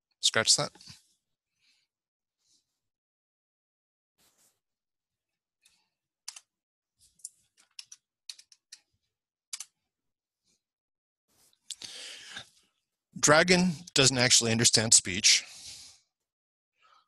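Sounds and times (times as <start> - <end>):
mouse and keyboard clicks: 6.3 - 6.5, 7.2 - 8.8, 9.5 - 9.8.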